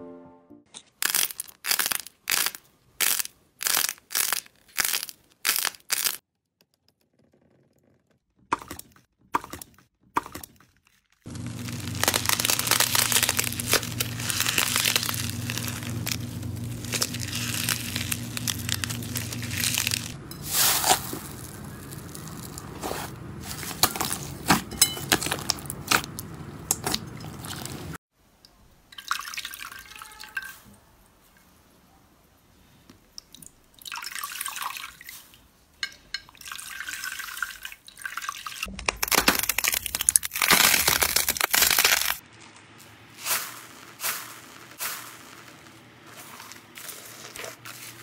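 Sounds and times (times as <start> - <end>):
hands squeezing slime and clay: 0.9 - 6.2, 11.4 - 27.9
slime crunching and crackling: 0.9 - 6.2, 11.2 - 28.0, 38.7 - 48.0
low steady hum: 11.3 - 28.0.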